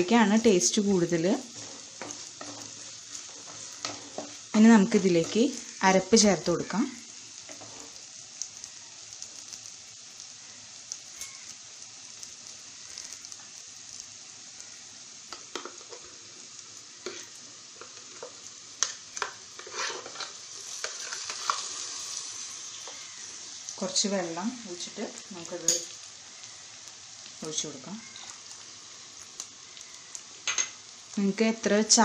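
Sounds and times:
food sizzling in hot oil: 0.0 - 32.0
thick paste scraped into pot: 19.6 - 21.3
wooden spatula scraping clay pot: 19.6 - 21.7.

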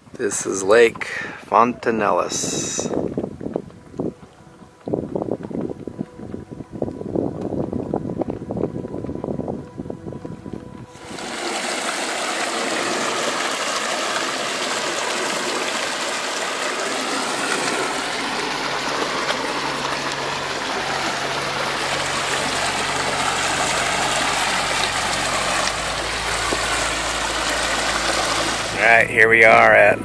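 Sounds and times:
creek flowing over rocks: 10.9 - 29.9.

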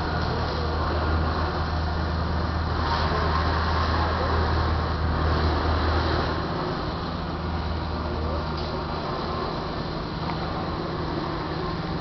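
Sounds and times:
model boat motor hum: 0.0 - 12.0
water noise: 0.0 - 12.0.

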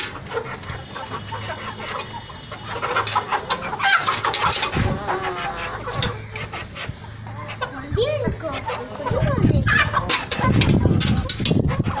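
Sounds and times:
young chickens clucking: 0.0 - 12.0.

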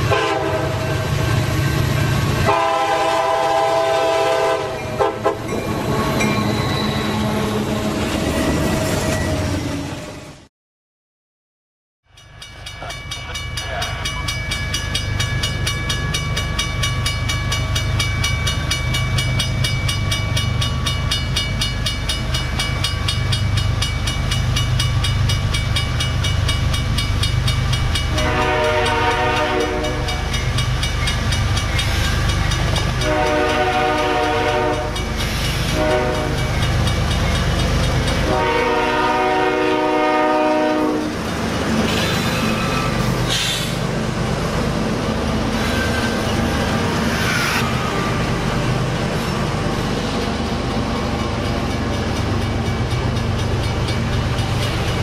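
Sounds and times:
locomotive air horn: 0.0 - 1.0, 2.4 - 6.2, 28.1 - 30.2, 33.0 - 35.0, 35.6 - 36.5, 38.2 - 41.1
diesel locomotive engine rumbling: 0.0 - 10.5, 12.1 - 55.0.

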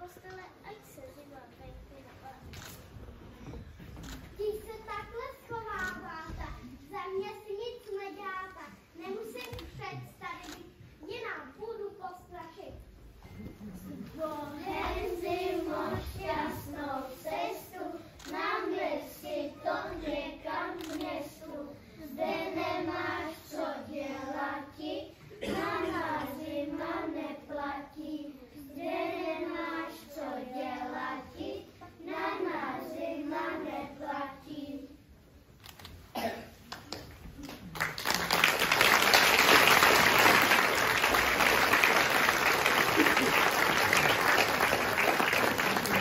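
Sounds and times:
children singing in unison: 14.7 - 17.8, 22.1 - 27.2
audience applause: 37.4 - 46.0.

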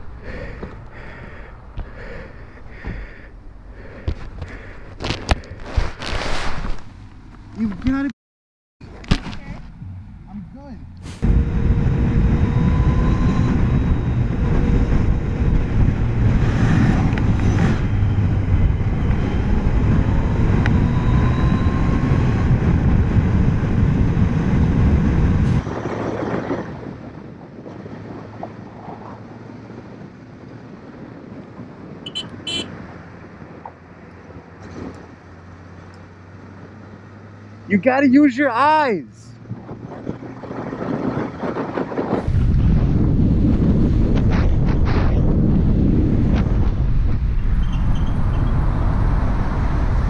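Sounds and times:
motorcycle engine drone: 9.7 - 28.2, 29.3 - 33.6, 39.4 - 50.0
wind rush on microphone: 11.0 - 35.2, 39.4 - 50.0.

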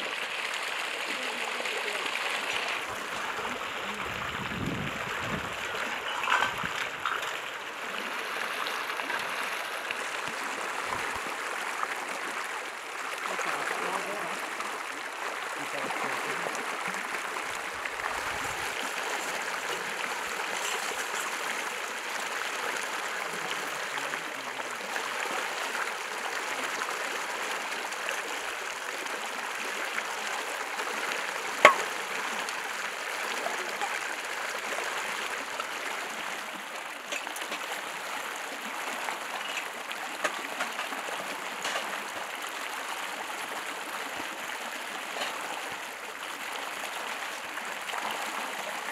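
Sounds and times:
river rushing over rocks: 0.0 - 48.9
metal dishes clattering: 5.8 - 7.4, 31.7 - 31.9.

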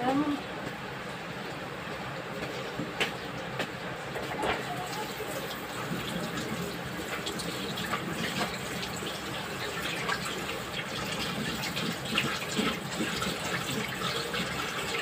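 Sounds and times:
steady wash of water: 4.8 - 15.0.

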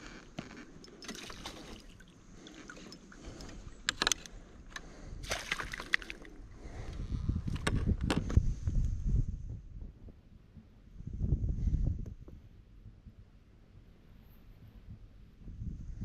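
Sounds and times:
sharp splashes and knocks: 1.0 - 3.1, 5.2 - 6.3
water sloshing around landing net: 1.0 - 3.5, 5.2 - 6.3.

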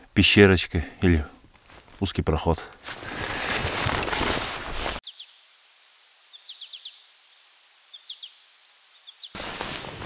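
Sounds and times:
clothing rustle: 1.5 - 2.0, 2.8 - 5.0, 9.4 - 10.0
small birds chirping: 5.0 - 9.4
footsteps: 9.4 - 10.0.

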